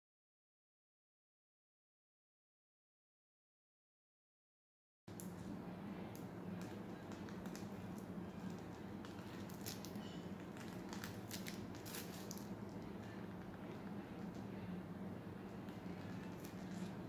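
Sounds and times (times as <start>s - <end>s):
low hum: 5.1s - 17.0s
plastic piping bag crinkling: 6.5s - 14.6s, 15.4s - 17.0s.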